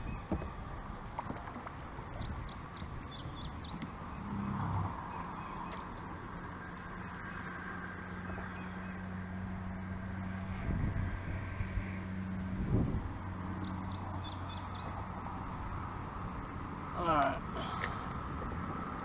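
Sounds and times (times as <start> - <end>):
steady low drone: 0.0 - 19.0
small bird chirping: 13.3 - 15.0.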